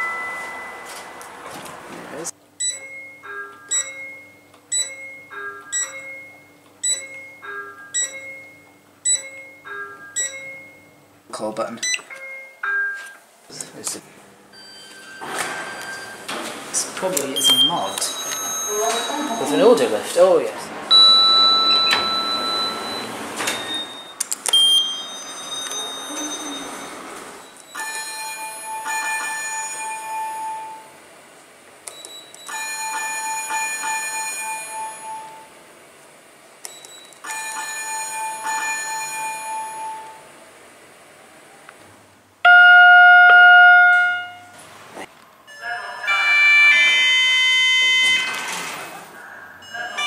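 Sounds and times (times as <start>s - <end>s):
bell-like lift chime: 0.0s - 1.1s, 24.9s - 27.0s, 45.5s - 46.9s
short beep: 42.5s - 44.5s.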